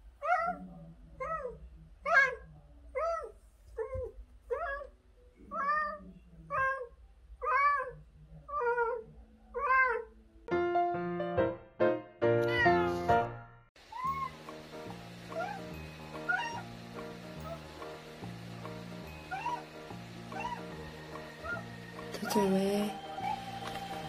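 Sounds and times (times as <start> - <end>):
cat meowing: 0.2 - 4.9, 5.5 - 10.2, 13.9 - 14.4, 15.3 - 16.7, 19.3 - 20.8, 21.4 - 22.5
bright music jingle: 14.2 - 24.0.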